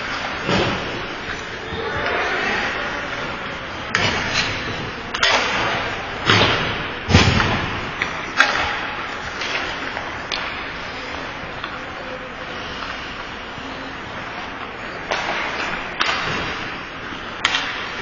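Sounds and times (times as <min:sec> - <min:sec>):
sticks and puck knocking: 0:07.3 - 0:10.6, 0:15.0 - 0:16.6, 0:17.4 - 0:18.0.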